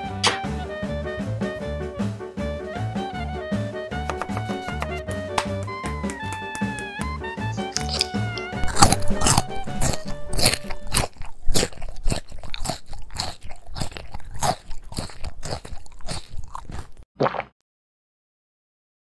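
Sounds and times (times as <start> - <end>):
background music: 0.0 - 11.2
crunchy chewing of raw vegetable: 7.5 - 17.5.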